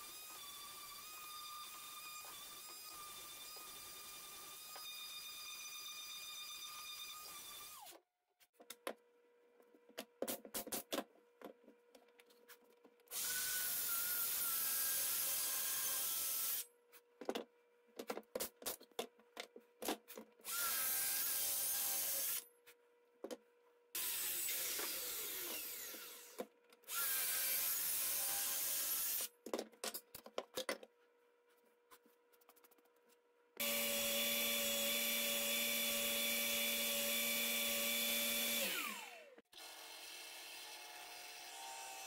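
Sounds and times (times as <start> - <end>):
circular saw cutting wood: 20.5 - 22.4, 24.0 - 29.3, 33.6 - 42.0
clicks and knocks of handling: 29.4 - 31.0.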